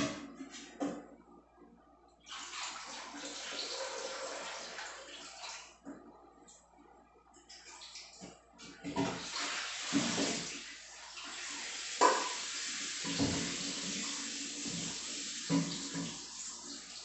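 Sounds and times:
tap running into metal sink: 12.0s - 12.4s, 13.0s - 13.9s, 15.5s - 16.2s.

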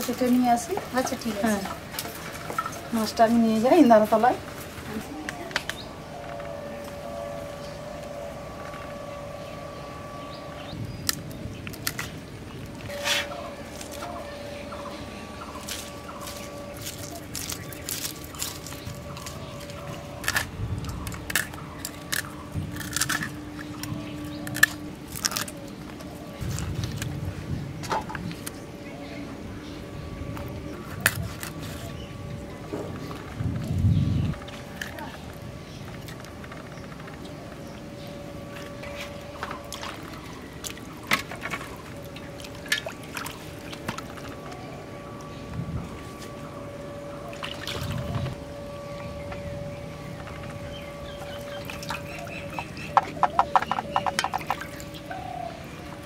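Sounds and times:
water sloshing and splashing: 0.0s - 5.0s, 15.2s - 28.5s, 38.4s - 46.4s, 47.1s - 56.0s
faint steady hum: 0.0s - 56.0s.

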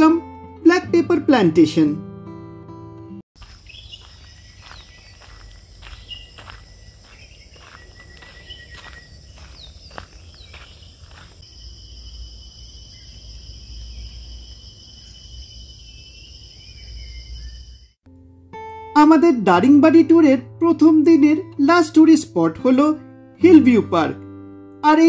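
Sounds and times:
footsteps on a path: 3.4s - 11.5s
bird chirps: 3.4s - 18.0s
insects droning: 3.4s - 18.0s.

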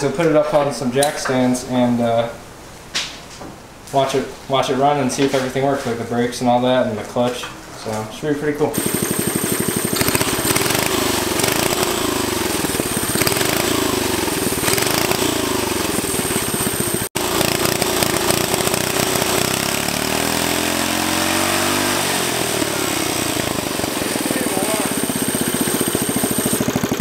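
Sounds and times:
small engine running: 8.7s - 27.0s.

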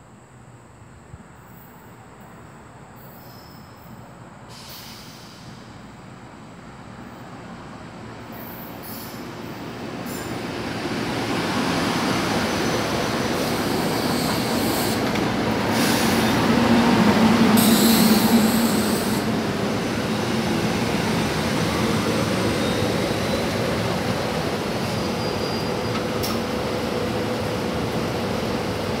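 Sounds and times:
train wheels rumbling on rails: 7.3s - 29.0s.

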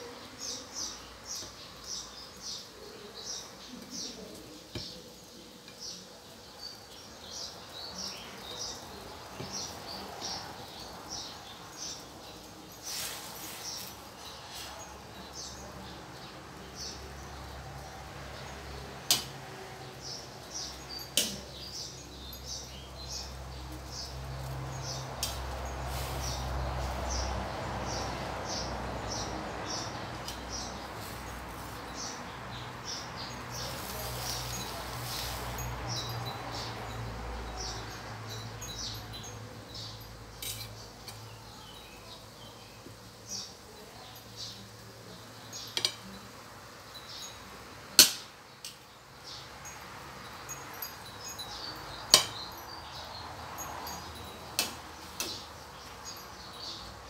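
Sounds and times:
metal spatula clinking on wok: 40.4s - 41.3s, 45.7s - 46.3s, 52.1s - 52.5s, 53.9s - 55.4s.

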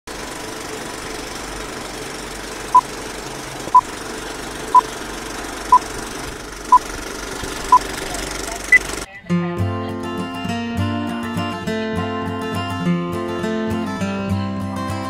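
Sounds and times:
film projector rattle: 0.1s - 9.1s.

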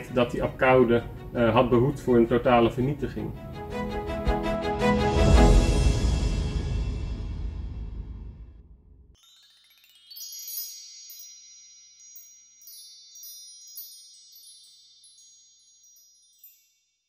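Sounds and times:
background music: 0.0s - 8.6s
sparkling chime effect: 9.2s - 17.0s.

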